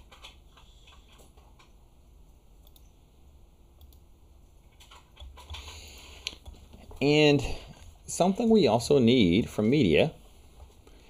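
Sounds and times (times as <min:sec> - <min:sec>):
low steady hum: 0:00.0 - 0:11.0
computer mouse clicks: 0:02.6 - 0:02.9, 0:03.8 - 0:04.1.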